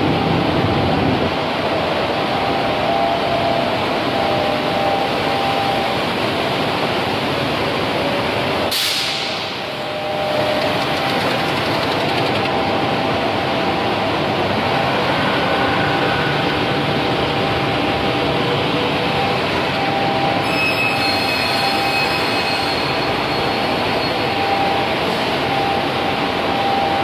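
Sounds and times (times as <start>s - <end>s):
short sharp hiss: 8.7s - 9.5s.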